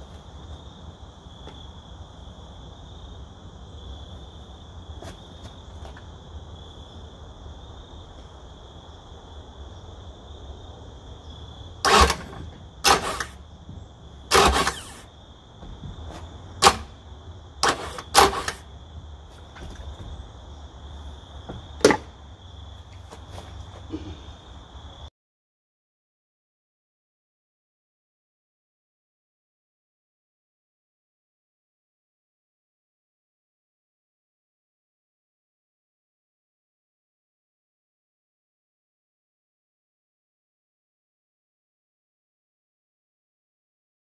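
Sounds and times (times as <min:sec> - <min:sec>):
crickets droning: 0:00.0 - 0:25.1
outboard electric starter bursts: 0:11.8 - 0:13.5, 0:14.3 - 0:15.2, 0:16.6 - 0:18.7.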